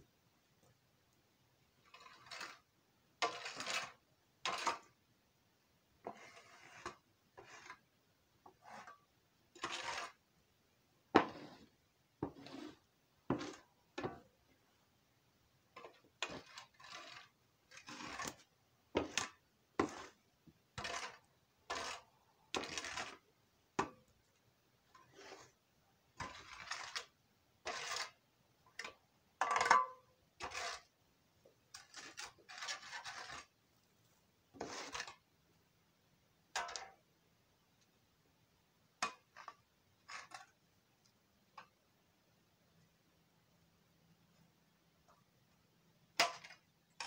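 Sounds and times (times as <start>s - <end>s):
metal shovel scraping floor: 1.9s - 4.9s, 6.0s - 7.8s, 8.6s - 9.0s, 9.6s - 10.2s, 11.2s - 14.2s, 15.8s - 20.2s, 20.8s - 23.2s, 25.0s - 25.6s, 26.2s - 28.2s, 28.8s - 30.9s, 31.7s - 33.5s, 34.6s - 35.2s, 39.0s - 40.6s.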